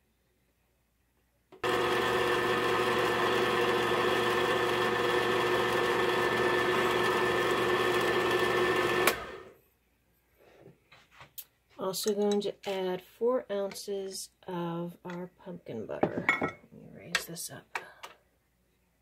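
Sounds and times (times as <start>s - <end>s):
stand mixer motor humming: 1.6s - 9.5s.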